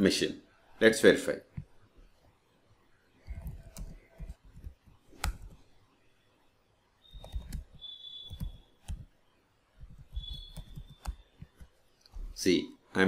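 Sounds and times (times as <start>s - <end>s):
keyboard typing: 3.2s - 5.7s, 7.1s - 9.2s, 9.8s - 12.4s.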